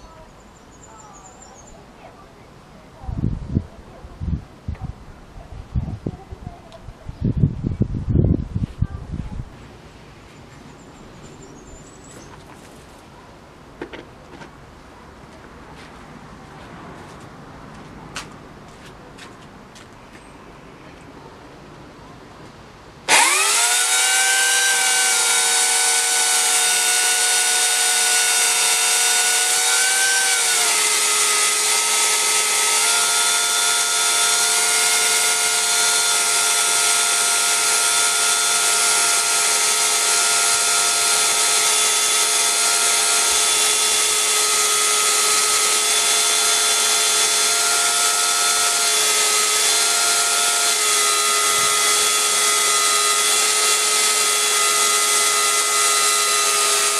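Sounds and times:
electric chainsaw cutting log: 0:23.1 - 0:56.9.

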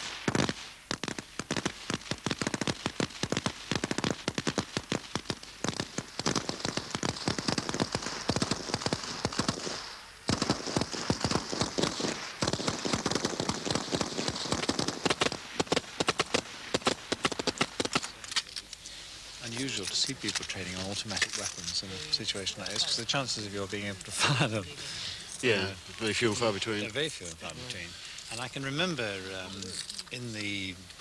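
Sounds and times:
machine gun bursts: 0:00.0 - 0:18.2.

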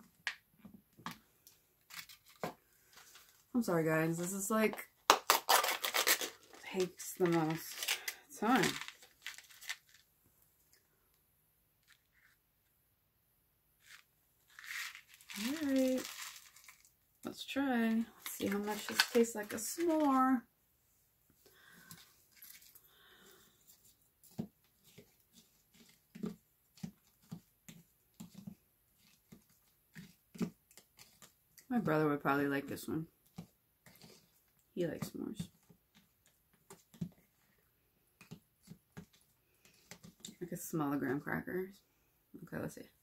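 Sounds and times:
foil packet rustling: 0:05.1 - 0:10.1, 0:13.8 - 0:17.0, 0:18.2 - 0:20.3.

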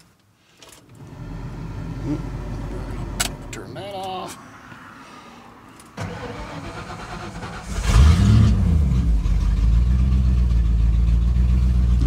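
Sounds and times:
truck engine revving and idling: 0:01.0 - 0:04.1, 0:06.1 - 0:12.0.

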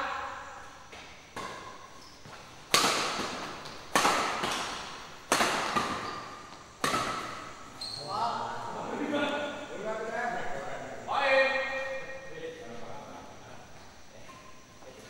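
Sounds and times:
badminton racket hitting shuttlecock: 0:01.4 - 0:07.6.

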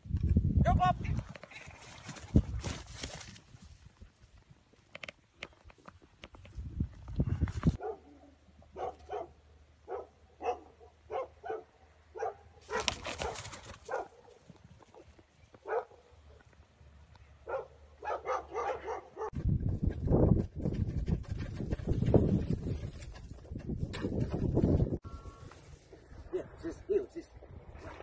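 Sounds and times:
dog barking and yapping: 0:07.8 - 0:14.4, 0:15.6 - 0:16.0, 0:17.5 - 0:19.4.

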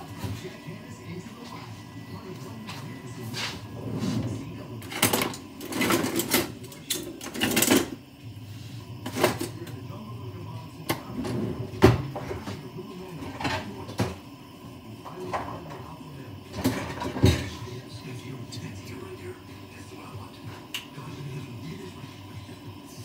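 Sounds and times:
utensils and cookware clattering: 0:03.3 - 0:08.0, 0:09.0 - 0:09.8, 0:13.2 - 0:14.2, 0:16.5 - 0:17.7.

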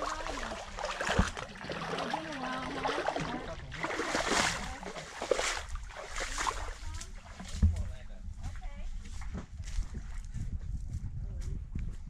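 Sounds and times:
feet splashing through water: 0:00.0 - 0:08.0.

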